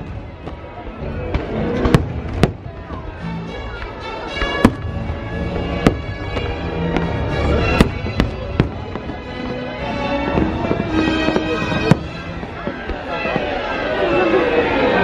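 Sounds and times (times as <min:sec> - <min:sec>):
music soundtrack: 0:00.0 - 0:15.0
fireworks bursting: 0:01.3 - 0:03.2, 0:04.3 - 0:13.8.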